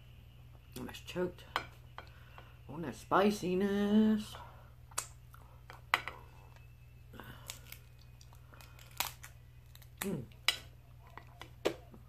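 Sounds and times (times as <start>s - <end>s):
lobster shell cracking: 7.4s - 11.8s.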